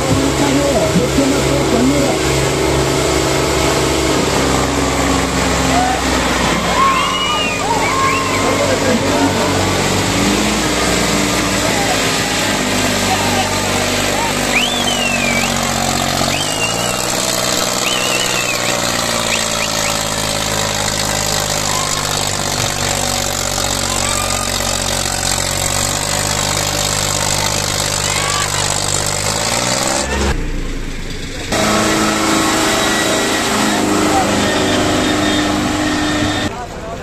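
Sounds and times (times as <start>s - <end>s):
tractor diesel engine running: 0.0s - 37.0s
shrill whistles: 6.7s - 8.5s, 14.4s - 20.2s.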